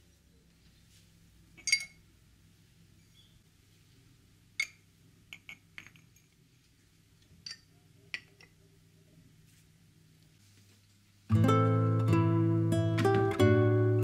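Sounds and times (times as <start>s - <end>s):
porcelain mugs clinking on hooks: 1.6s - 2.0s, 4.6s - 6.4s, 7.4s - 8.6s.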